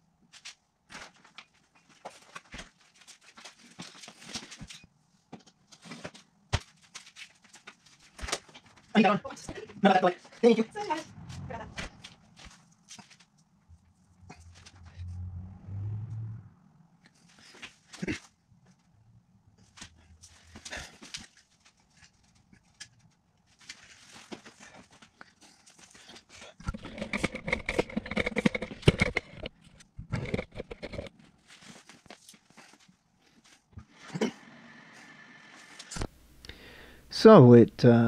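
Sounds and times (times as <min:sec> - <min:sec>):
clicks and knocks: 0:26.6 - 0:31.1.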